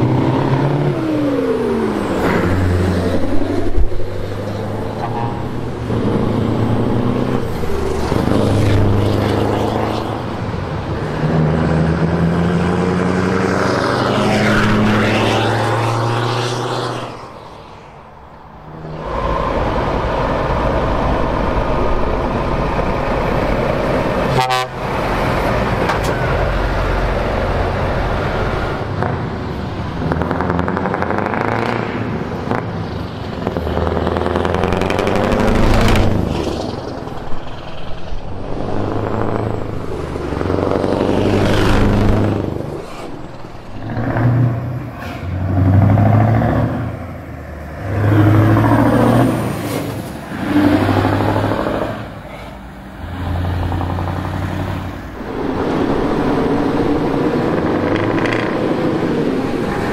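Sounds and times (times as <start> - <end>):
lorry diesel engines: 0.0 - 59.9
truck horn: 24.2 - 25.1.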